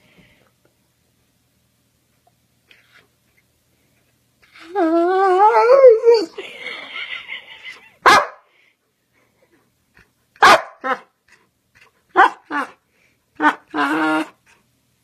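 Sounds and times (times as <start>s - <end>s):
dog barking: 8.0s - 8.5s, 10.4s - 11.0s, 12.2s - 12.7s
dog howling: 13.4s - 14.4s.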